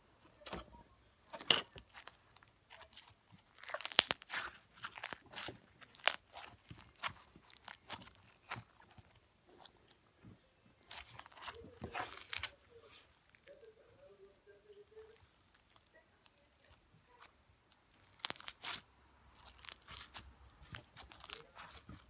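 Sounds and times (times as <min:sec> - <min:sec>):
slime squeezed clicking and popping: 0:01.9 - 0:09.0, 0:18.0 - 0:18.8.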